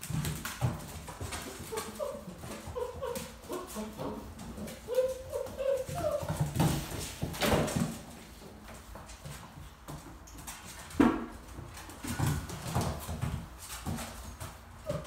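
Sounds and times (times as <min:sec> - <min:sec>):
puppies whining and yipping: 0:01.4 - 0:06.7, 0:14.8 - 0:15.0.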